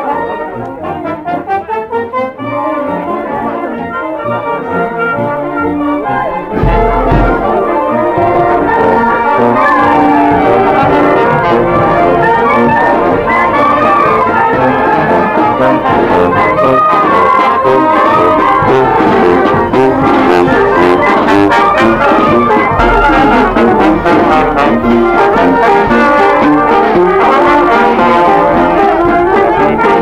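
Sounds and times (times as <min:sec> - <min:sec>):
marching brass band playing: 0:00.0 - 0:30.0
bass drum beat: 0:06.4 - 0:09.2, 0:22.7 - 0:25.2.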